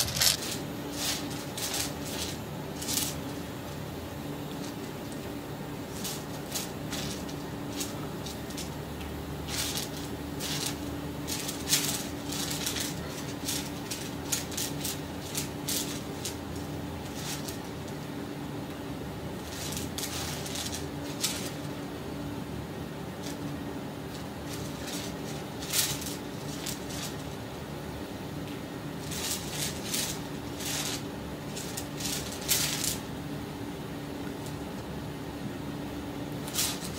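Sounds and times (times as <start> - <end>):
small items rattling on a plate: 0.0 - 3.4, 5.9 - 18.1, 19.4 - 21.8, 23.2 - 27.4, 28.9 - 33.1, 36.4 - 36.9
steady low hum: 0.0 - 36.9.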